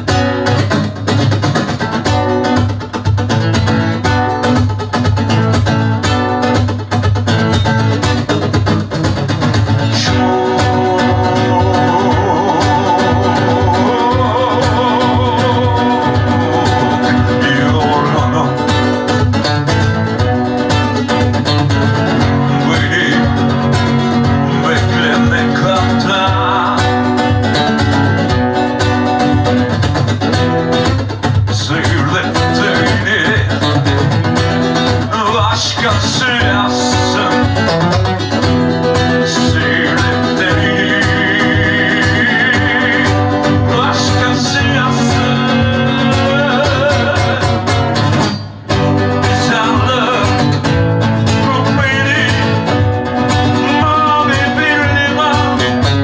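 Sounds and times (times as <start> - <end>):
acoustic guitar playing: 0.0 - 56.0
man singing: 9.7 - 19.3, 21.0 - 27.8, 31.4 - 48.2, 48.8 - 56.0.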